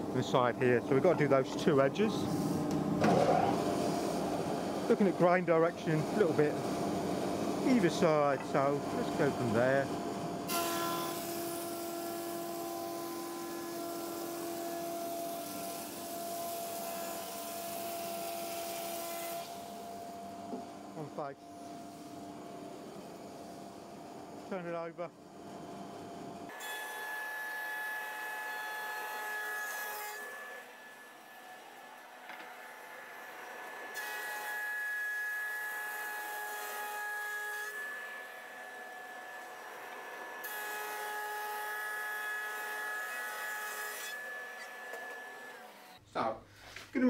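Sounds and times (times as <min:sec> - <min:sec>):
planer cutting wood hiss: 0:10.5 - 0:20.0.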